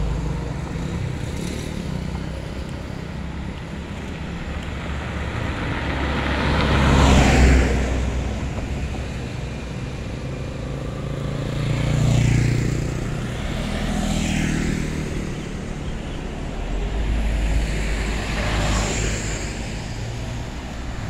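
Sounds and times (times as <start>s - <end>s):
small motorcycles passing: 0.1s - 21.0s
vehicle passing with deep sound: 4.8s - 21.0s.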